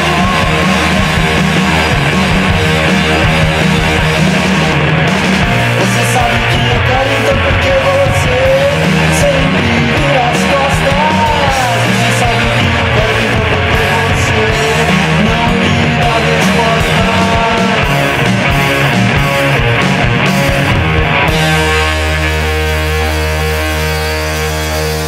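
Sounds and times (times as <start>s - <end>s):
wavering lead melody: 0.0s - 7.6s, 8.3s - 25.0s
rock band playing: 0.0s - 25.0s.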